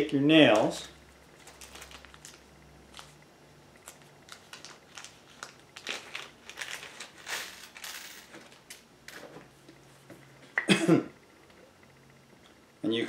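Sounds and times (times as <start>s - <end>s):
plastic bag crinkling: 1.4s - 3.2s, 3.8s - 8.8s.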